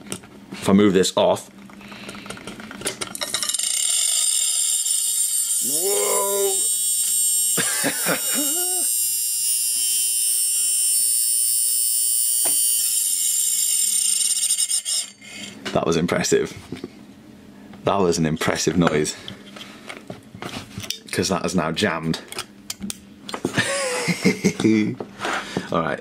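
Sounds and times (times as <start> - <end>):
hard drive whine: 3.6 - 15.6.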